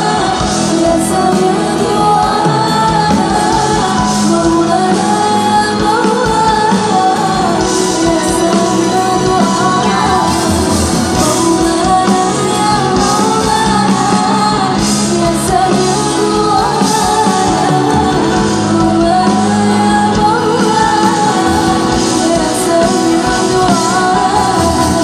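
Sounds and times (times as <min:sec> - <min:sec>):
bass guitar: 0:00.0 - 0:25.0
drums: 0:00.0 - 0:25.0
female singers: 0:00.0 - 0:25.0
keyboards: 0:00.0 - 0:25.0.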